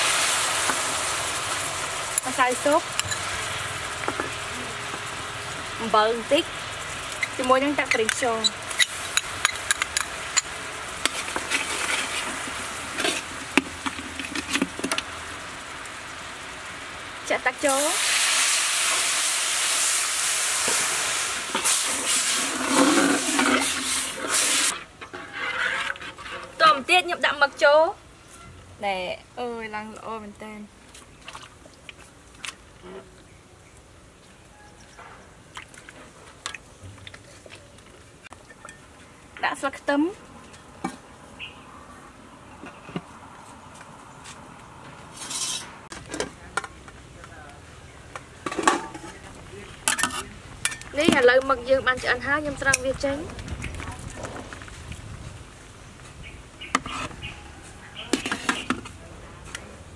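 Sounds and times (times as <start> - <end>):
sauce bubbling and sizzling: 0.0 - 24.8
spatula scraping and clinking pan: 22.5 - 26.8, 45.2 - 45.8.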